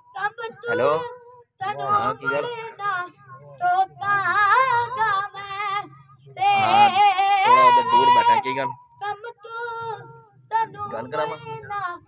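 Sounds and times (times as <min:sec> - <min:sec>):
boy singing unaccompanied: 0:00.0 - 0:12.0.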